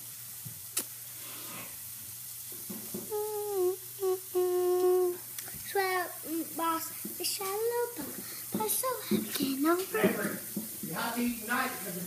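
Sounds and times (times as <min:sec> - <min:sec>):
girl humming: 0:02.9 - 0:09.6.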